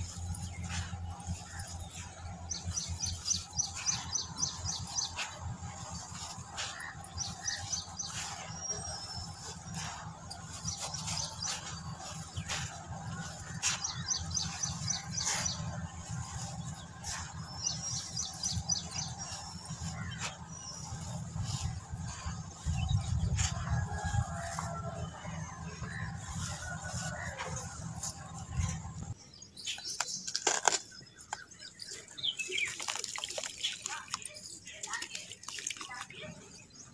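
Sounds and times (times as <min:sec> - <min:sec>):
birds chirping: 0:00.0 - 0:36.9
dirt crumbled by hand: 0:29.7 - 0:34.2
dirt trickling onto a heap: 0:32.2 - 0:36.1.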